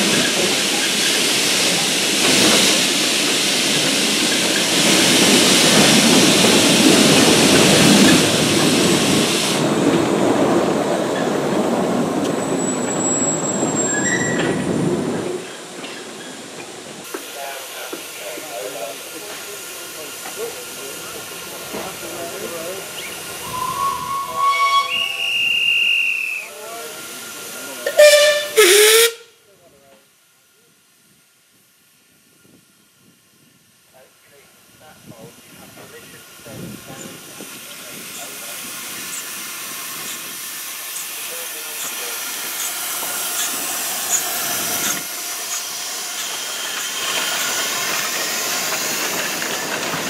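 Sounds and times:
steam hissing: 0.0 - 10.1, 15.4 - 29.2, 34.8 - 50.0
thin whistle tones: 23.0 - 26.6
steam whistle blasts: 23.4 - 26.5, 27.9 - 29.3.

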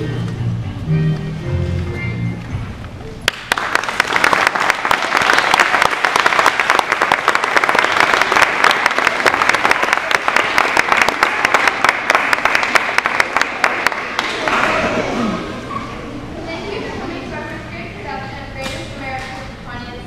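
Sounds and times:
audience applauding: 3.3 - 15.1.

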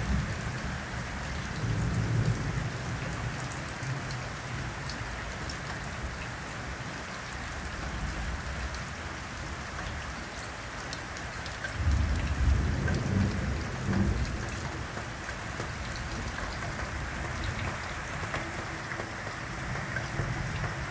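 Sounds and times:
steady rain falling: 0.0 - 20.9
thunder rumbling: 11.8 - 18.8.

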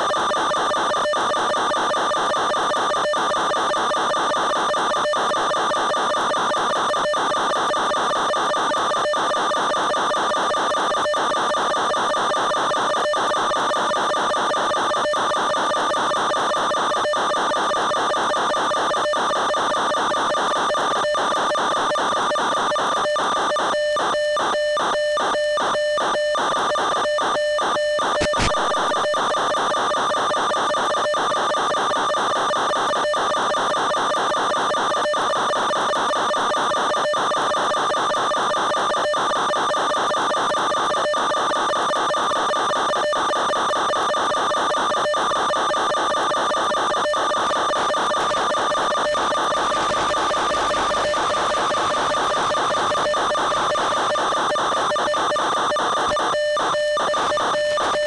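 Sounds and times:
sharp click: 28.2 - 29.0
steady electrical buzz: 28.2 - 29.3.

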